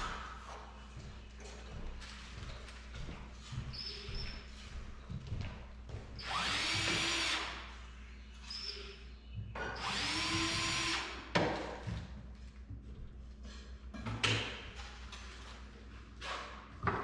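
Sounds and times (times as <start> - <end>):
cordless drill spinning: 6.2 - 7.5, 9.8 - 11.1.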